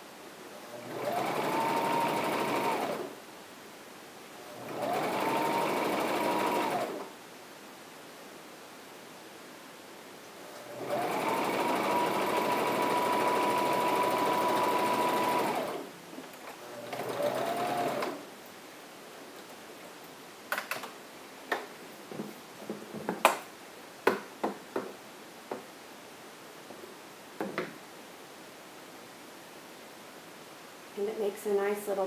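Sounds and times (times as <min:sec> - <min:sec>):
sewing machine stitching: 0:00.8 - 0:03.1, 0:04.6 - 0:07.1, 0:10.7 - 0:15.9, 0:16.7 - 0:18.2.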